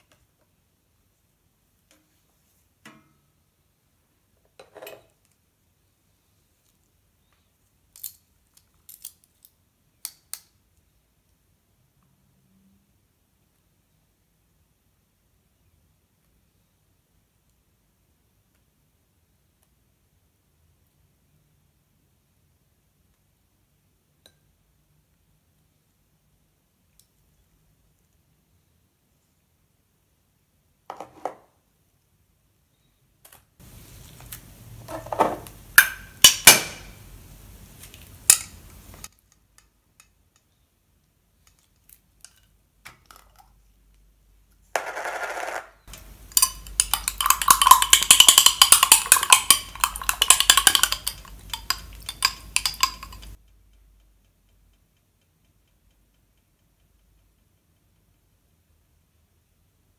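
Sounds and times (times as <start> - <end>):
metal spoon scraping in jar: 45.9 - 53.4.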